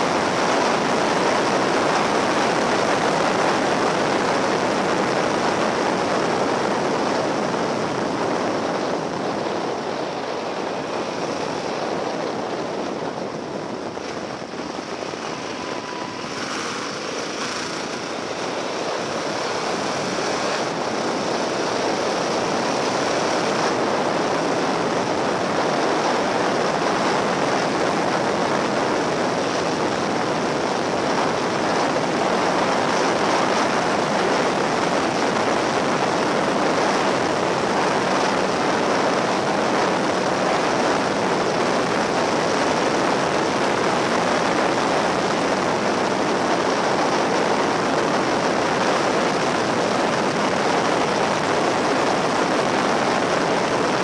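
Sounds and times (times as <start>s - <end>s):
motorcycle engine running: 0.0s - 34.8s
wind and road noise: 0.0s - 54.0s.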